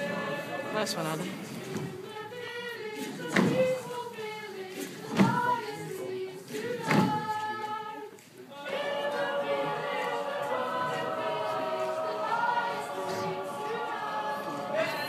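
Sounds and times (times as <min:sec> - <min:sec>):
children singing a cappella: 0:00.0 - 0:15.0
heavy thumps: 0:03.0 - 0:03.9, 0:05.0 - 0:05.6, 0:06.8 - 0:07.4.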